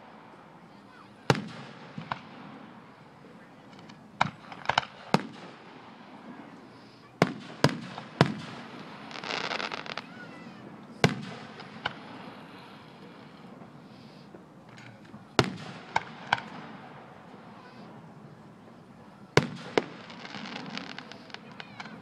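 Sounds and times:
firework shells booming: 1.2 - 3.0, 3.7 - 6.4, 7.2 - 13.9, 14.7 - 18.0, 19.3 - 22.0.

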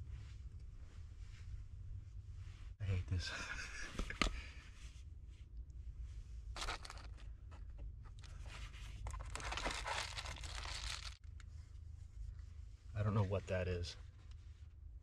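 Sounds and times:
steady low rumble: 0.0 - 15.0
material crinkling and rustling: 6.6 - 11.5.

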